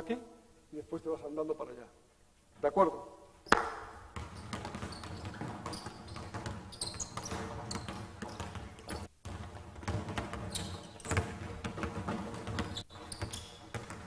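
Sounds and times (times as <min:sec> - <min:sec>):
basketball bouncing on wooden floor: 0:03.5 - 0:14.0.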